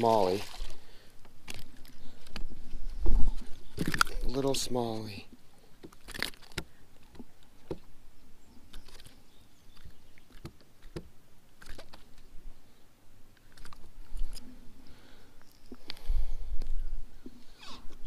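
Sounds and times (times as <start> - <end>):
fish flopping: 0.0 - 4.6, 5.6 - 7.9, 8.6 - 12.3
handling clicks and rustles: 1.2 - 5.1.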